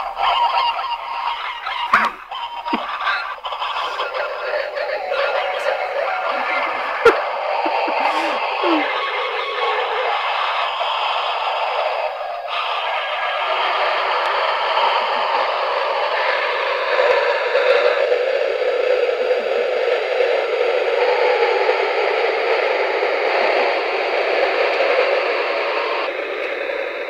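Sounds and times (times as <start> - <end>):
talking toys garbled chatter: 0.0 - 18.0.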